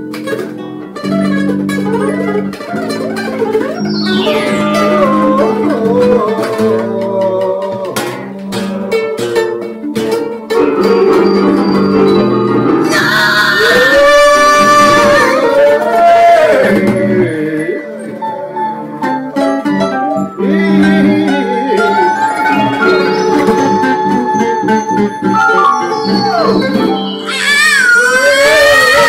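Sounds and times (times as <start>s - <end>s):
acoustic guitar strummed: 0.0s - 29.0s
electronic keyboard: 0.9s - 7.4s, 10.5s - 29.0s
man singing: 4.2s - 9.2s, 12.8s - 19.1s, 20.3s - 25.8s.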